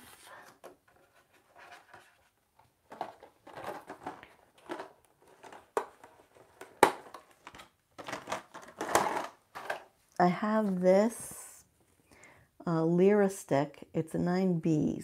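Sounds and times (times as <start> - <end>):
rustling and crinkling: 0.0 - 11.2.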